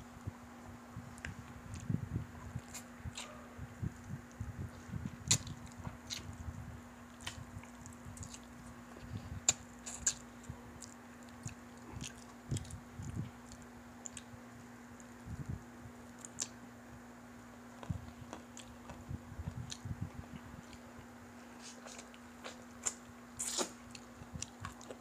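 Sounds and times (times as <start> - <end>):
faint steady hum: 0.0 - 25.0
people chewing food: 4.0 - 14.4, 17.8 - 25.0.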